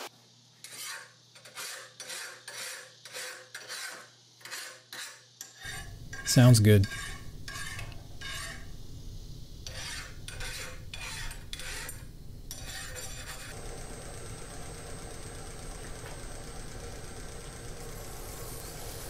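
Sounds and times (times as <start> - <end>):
hand file scraping steel blade: 0.6 - 8.7, 9.6 - 13.6.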